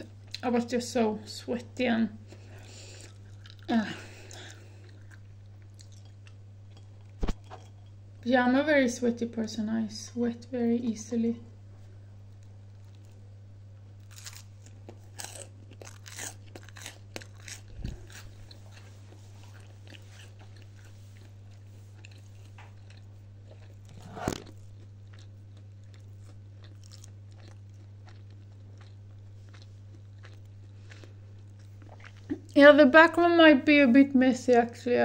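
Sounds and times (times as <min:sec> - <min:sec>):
steady low hum: 0:00.0 - 0:35.0
quiet chewing: 0:02.3 - 0:08.0, 0:12.3 - 0:13.2, 0:14.1 - 0:32.6
crunching toast: 0:14.0 - 0:18.9, 0:19.5 - 0:32.0.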